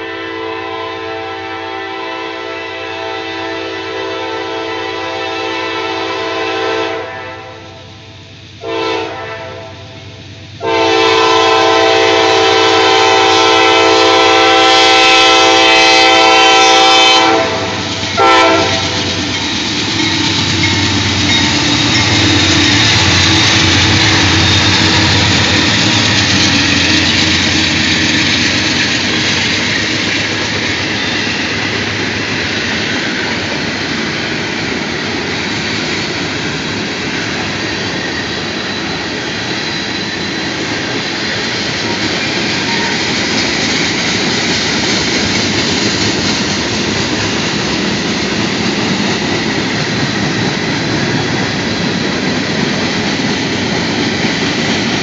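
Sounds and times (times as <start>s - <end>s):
train horn blasts: 0.0s - 8.0s, 8.6s - 19.2s, 42.6s - 43.1s
train wheels clacking on rails: 8.6s - 55.0s
locomotive engine rumble: 9.5s - 55.0s.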